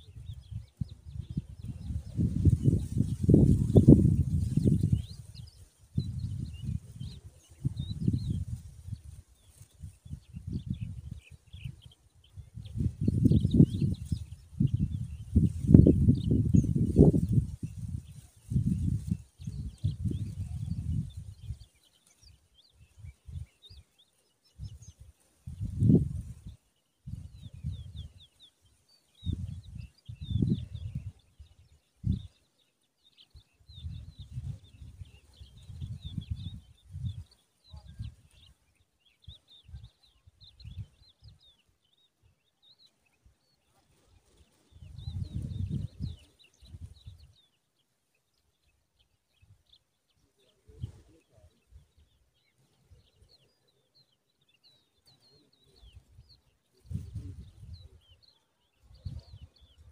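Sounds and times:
wind buffeting microphone: 0.0s - 21.7s, 24.6s - 28.3s, 29.2s - 32.4s, 33.6s - 38.6s, 39.2s - 42.0s, 44.0s - 47.4s, 55.7s - 58.2s
faint high bird chirps: 0.0s - 59.9s.

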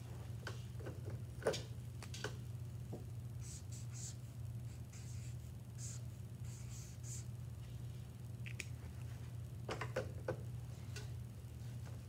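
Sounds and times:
marker scratching on paper: 3.4s - 7.2s.

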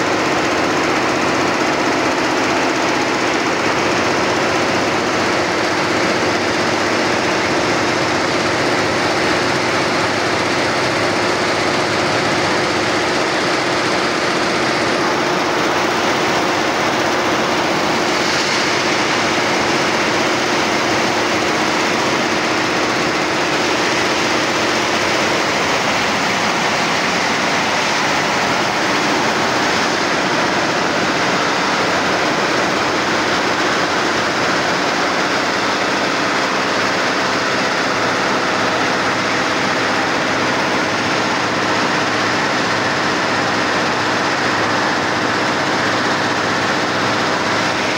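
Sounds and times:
embroidery machines clattering: 0.0s - 47.9s
steady hum: 0.0s - 47.9s.

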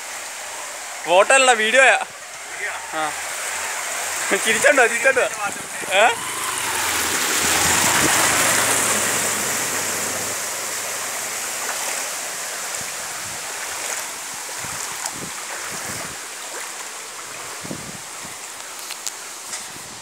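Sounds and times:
water spray splashing: 0.0s - 19.8s
motorbike engine humming: 2.1s - 11.6s.

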